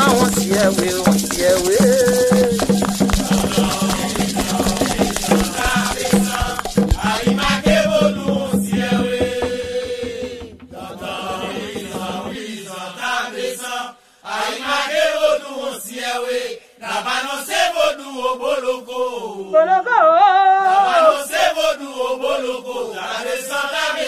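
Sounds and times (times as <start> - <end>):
low steady drum beat: 0.0 - 12.5
voices singing a chant: 0.0 - 24.0.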